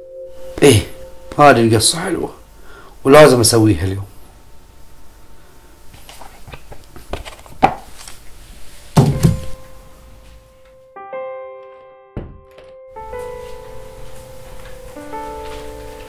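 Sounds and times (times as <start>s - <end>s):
heavy thunk: 9.0s - 9.5s, 12.2s - 12.7s
music cue of held notes: 9.4s - 16.0s.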